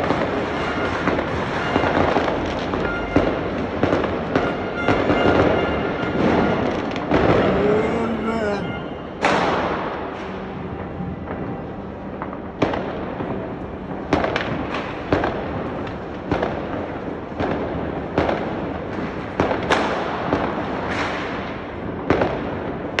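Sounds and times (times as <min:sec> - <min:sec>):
distant firework bursts rumbling: 0:00.0 - 0:23.0
sharp firework bangs echoing: 0:00.0 - 0:23.0.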